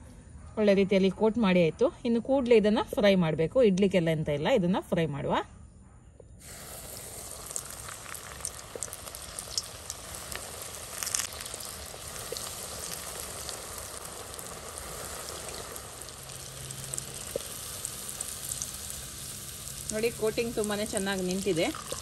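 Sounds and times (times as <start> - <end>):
food deep-frying in oil: 6.4 - 22.0.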